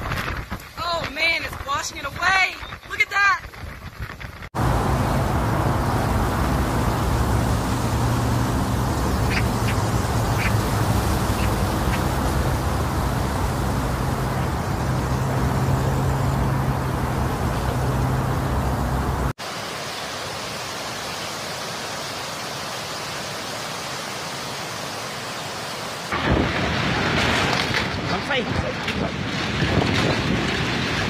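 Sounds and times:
hurricane wind: 0.0 - 19.4, 26.1 - 31.0
driving rain: 4.2 - 31.0
wind buffeting microphone: 26.2 - 31.0.

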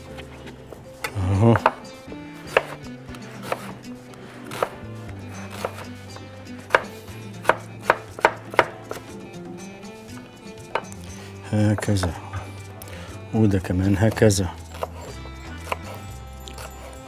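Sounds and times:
knife chopping on wooden board: 1.0 - 3.8, 4.4 - 4.8, 5.4 - 9.1, 14.0 - 17.0.

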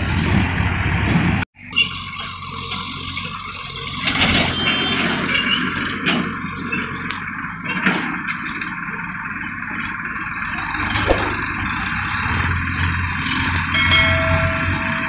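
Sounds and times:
tractor diesel engine running: 0.0 - 15.0.

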